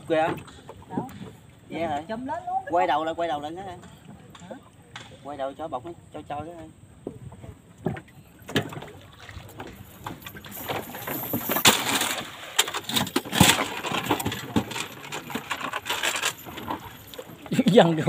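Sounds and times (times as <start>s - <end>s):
cast net splashing on water: 8.6s - 15.0s.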